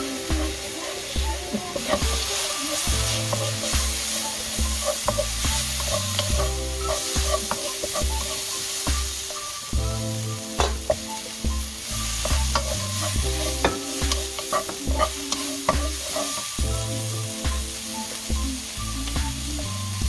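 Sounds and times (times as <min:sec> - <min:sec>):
wooden spatula scraping a pan: 0:00.0 - 0:09.6, 0:11.8 - 0:16.7
vegetables sizzling in a wok: 0:00.0 - 0:20.0.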